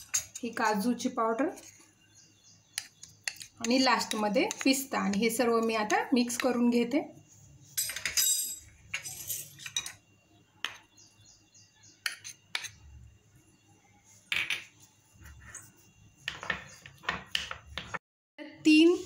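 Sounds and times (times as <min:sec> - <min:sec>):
metal spoon scraping bowl: 0:02.8 - 0:06.7, 0:12.0 - 0:12.8.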